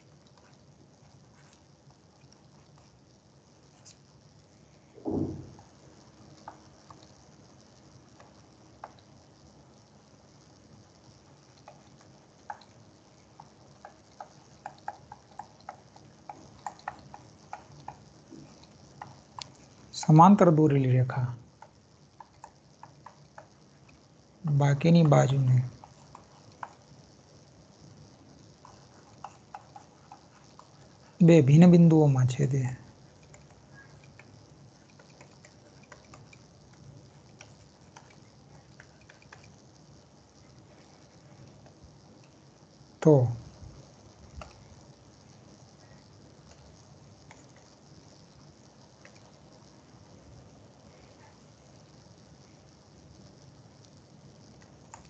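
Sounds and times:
low steady hum: 0.0s - 55.0s
stylus tapping on tablet: 12.5s - 12.8s, 13.4s - 18.1s.

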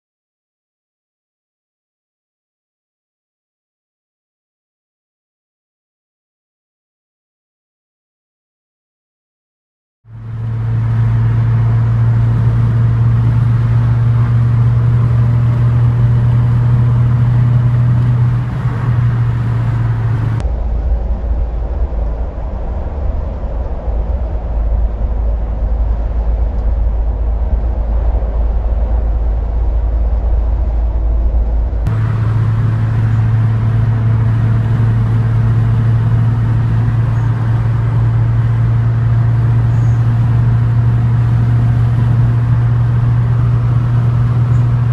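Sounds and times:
car engine drone and tyre noise: 10.1s - 44.9s.

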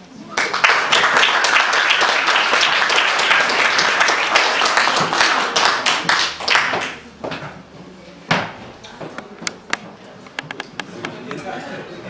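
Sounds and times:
audience applauding: 0.3s - 7.0s.

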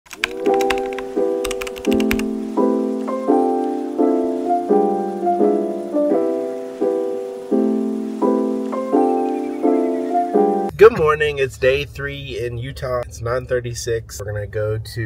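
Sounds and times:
ticks: 0.1s - 2.3s
soft piano chords: 0.1s - 10.7s.

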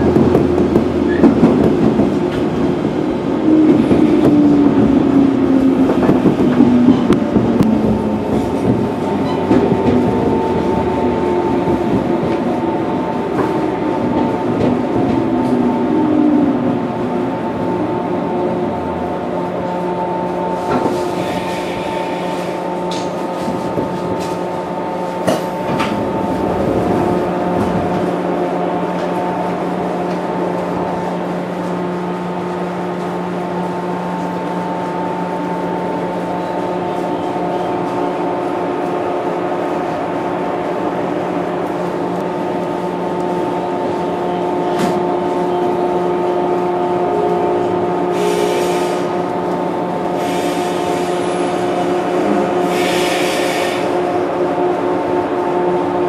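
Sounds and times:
train equipment humming: 0.0s - 56.0s
short air hisses: 52.6s - 53.9s.

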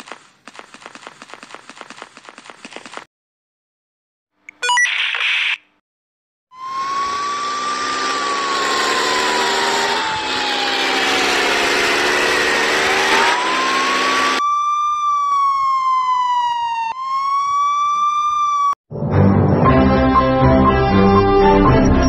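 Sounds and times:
siren wailing: 6.5s - 18.8s.

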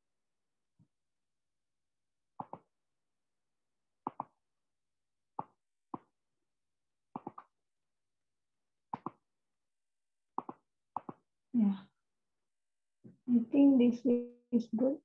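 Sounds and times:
computer mouse clicking: 2.4s - 2.7s, 4.1s - 4.4s, 7.2s - 7.5s, 9.0s - 9.2s, 10.4s - 11.2s.

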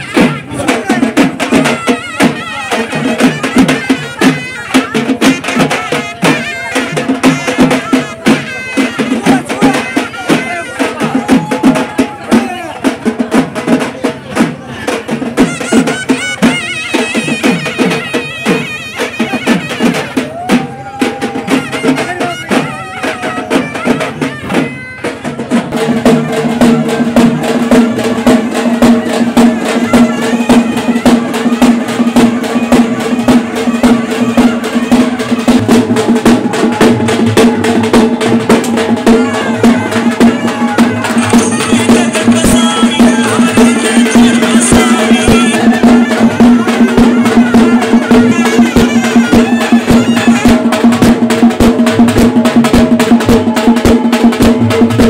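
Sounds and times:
fast drumming: 0.0s - 55.0s.

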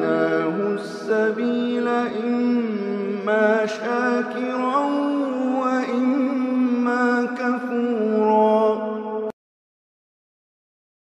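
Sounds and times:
man chanting melodically: 0.0s - 9.3s.

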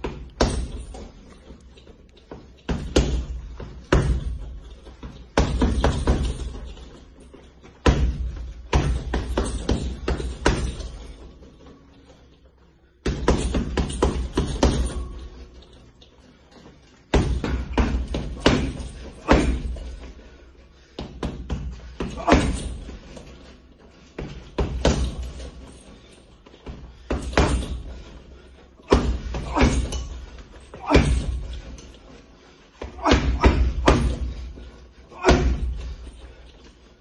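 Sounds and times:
punches on heavy bag: 7.9s - 11.0s, 17.1s - 20.0s, 21.0s - 23.0s, 24.2s - 25.4s, 27.1s - 28.0s, 28.8s - 31.7s, 32.8s - 36.1s.

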